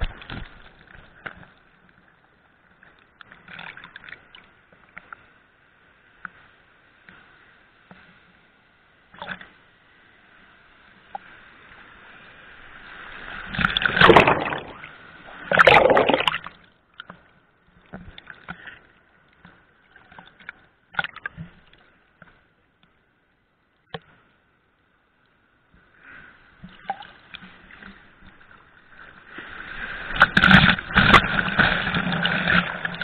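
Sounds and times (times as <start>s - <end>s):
water sloshing and splashing: 13.5s - 18.8s, 26.6s - 33.0s.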